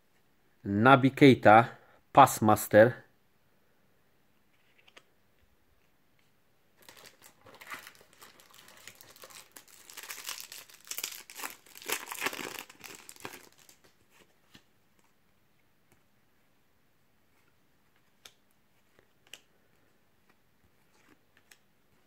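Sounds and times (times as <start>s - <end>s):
foil wrapper crinkling and tearing: 6.8s - 13.9s.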